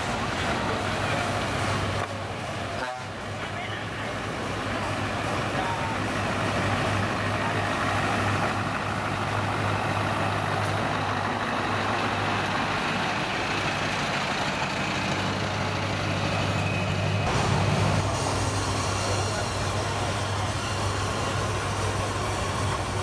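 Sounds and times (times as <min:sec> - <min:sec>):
truck diesel engine driving past: 0:00.0 - 0:23.0.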